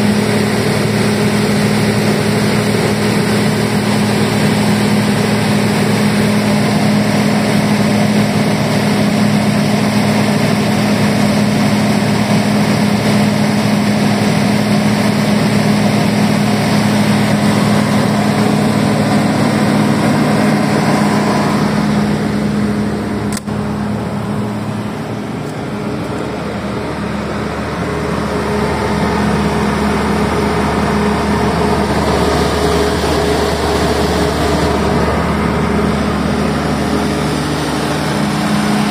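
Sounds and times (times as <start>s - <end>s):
diesel generator running: 0.0s - 38.9s
sharp click: 23.3s - 23.6s.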